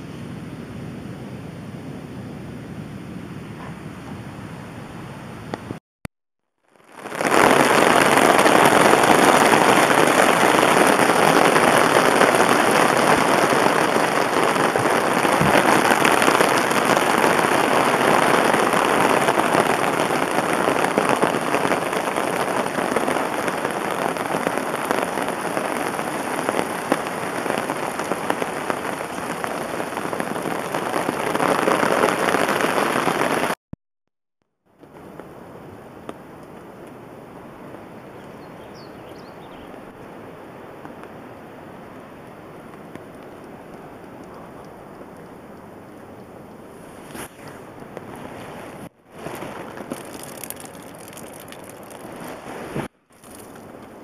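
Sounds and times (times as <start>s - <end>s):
falling water rushing: 6.8s - 33.6s, 41.9s - 54.0s.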